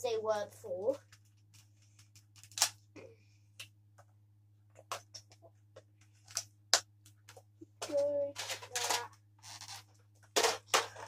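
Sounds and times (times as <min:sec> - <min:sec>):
toy blasters clicking and knocking: 0:07.8 - 0:09.8.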